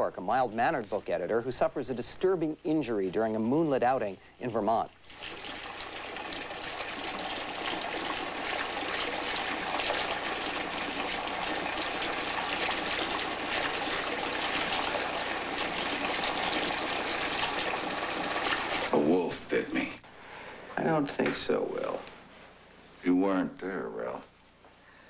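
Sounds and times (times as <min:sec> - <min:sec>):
tap water running into sink: 0:05.0 - 0:19.5.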